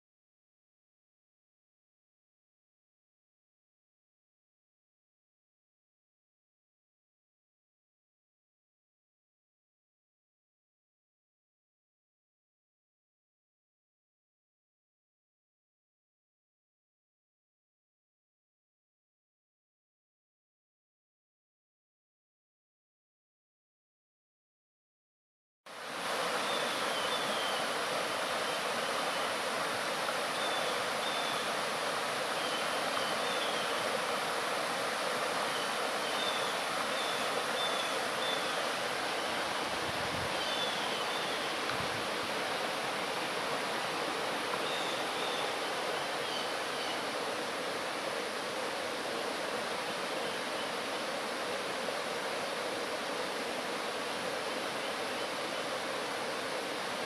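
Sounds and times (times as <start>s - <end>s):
stream rushing over stones: 25.7s - 57.0s.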